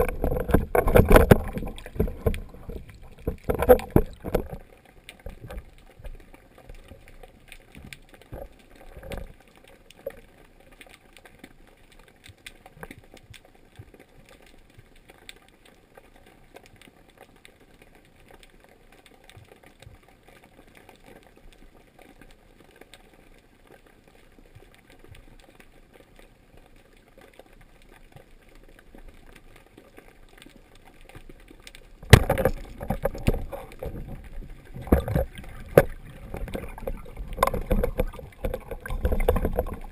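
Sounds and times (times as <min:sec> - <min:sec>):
faint underwater water noise: 0:00.0 - 0:39.9
small underwater clicks: 0:00.0 - 0:39.9
shaft and line rattling: 0:32.0 - 0:39.9.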